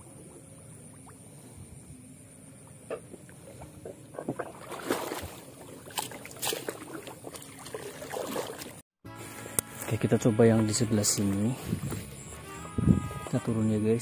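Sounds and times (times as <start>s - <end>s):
shallow water splashing: 2.8s - 8.8s.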